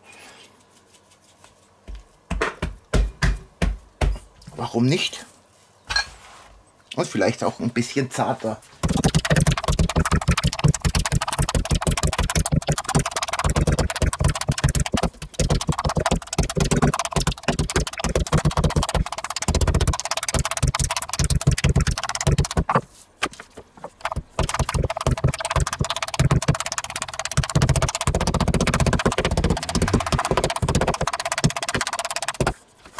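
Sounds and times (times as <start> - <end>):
meat mallet pounding on wood: 2.3 - 4.2, 8.8 - 22.8, 23.9 - 32.6.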